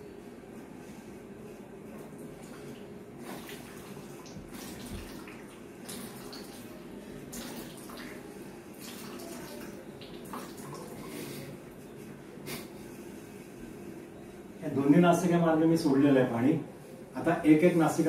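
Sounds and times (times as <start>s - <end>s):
water dripping into a bucket: 8.8s - 11.0s.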